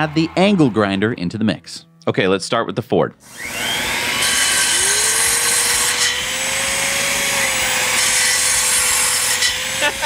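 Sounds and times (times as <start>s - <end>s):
angle grinder whining: 3.2s - 10.0s
circular saw cutting wood: 3.2s - 10.0s.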